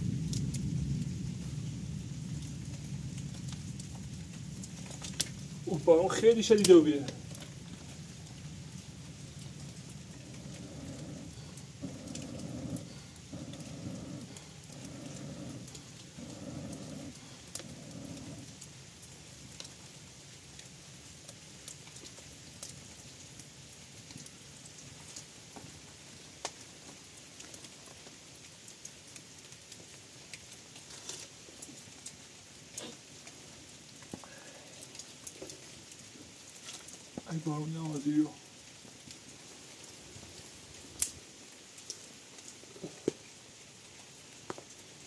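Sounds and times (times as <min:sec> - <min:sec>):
rain hissing: 0:00.0 - 0:45.0
small sharp ticks: 0:08.2 - 0:19.8, 0:40.4 - 0:41.2.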